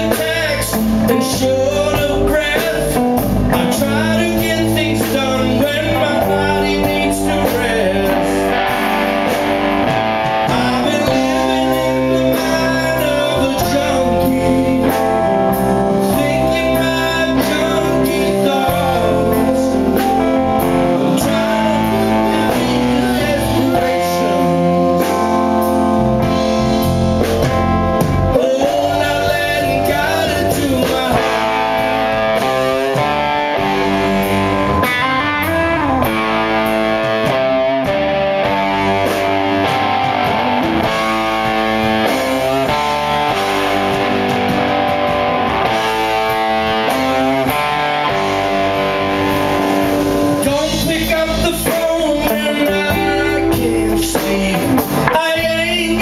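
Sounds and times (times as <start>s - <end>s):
person singing: 0.0s - 9.2s, 10.2s - 26.4s, 28.3s - 36.2s, 49.4s - 56.0s
drums: 0.0s - 56.0s
electric guitar lead lines: 0.0s - 56.0s.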